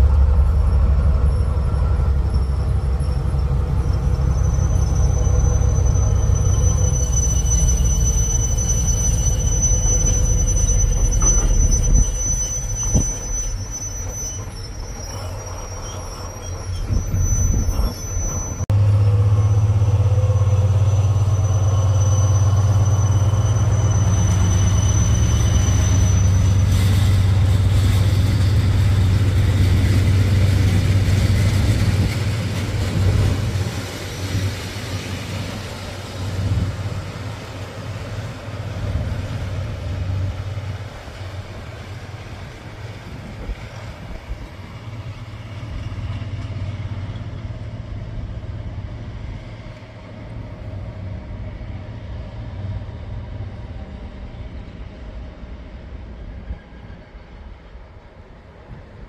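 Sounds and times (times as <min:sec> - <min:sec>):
locomotive engine drone: 0:00.0 - 0:58.8
wheels squealing on rails: 0:00.0 - 0:59.0.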